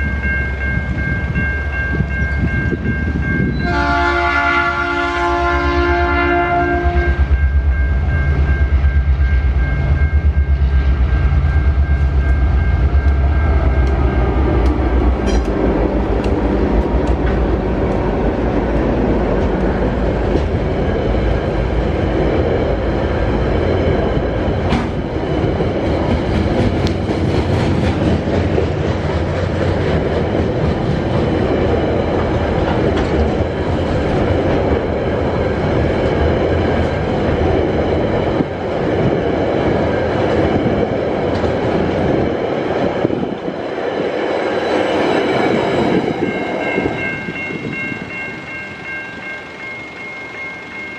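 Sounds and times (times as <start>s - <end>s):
diesel locomotive engine drone: 0.0s - 50.9s
train wheels clicking over rail joints: 13.8s - 18.2s, 19.2s - 20.8s, 24.5s - 34.9s.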